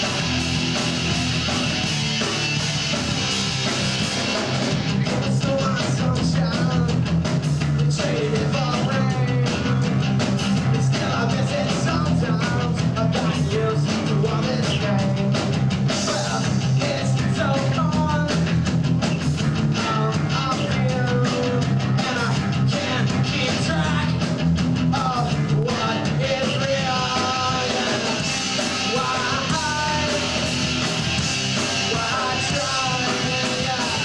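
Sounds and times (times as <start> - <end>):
bass guitar: 0.0 - 34.0
distorted electric guitars: 0.0 - 34.0
drum kit beat: 0.0 - 34.0
person singing: 25.0 - 30.5, 31.8 - 34.0.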